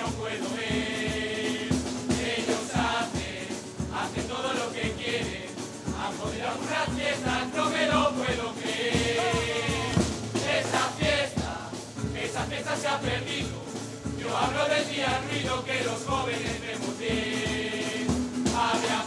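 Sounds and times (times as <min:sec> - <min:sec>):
men singing together: 0:00.0 - 0:19.0
percussion beating steady rhythm: 0:00.0 - 0:19.0.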